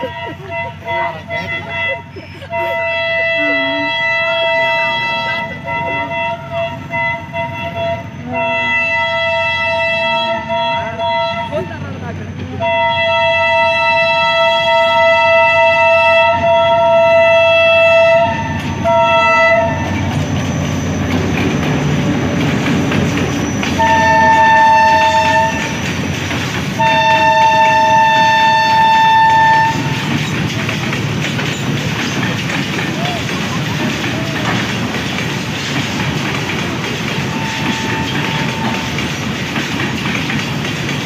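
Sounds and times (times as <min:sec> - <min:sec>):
locomotive horn blasts: 0:00.0 - 0:11.8, 0:12.6 - 0:20.1, 0:23.7 - 0:25.8, 0:26.8 - 0:30.1, 0:37.2 - 0:39.0
locomotive engine rumbling: 0:00.0 - 0:41.0
freight wagons clickety-clack: 0:16.2 - 0:41.0.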